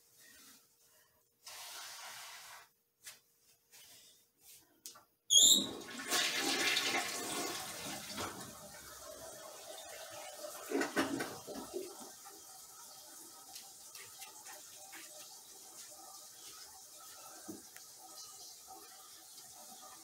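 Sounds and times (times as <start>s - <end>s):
brief high squeak: 5.3s - 5.8s.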